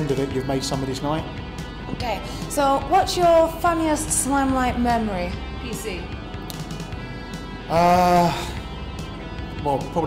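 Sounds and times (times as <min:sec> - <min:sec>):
man humming hmm: 0:07.7 - 0:08.6.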